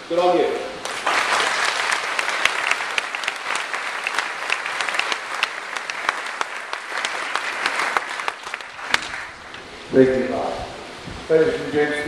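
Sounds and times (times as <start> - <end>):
audience applauding: 0.8 - 9.7
single close claps: 2.2 - 9.7.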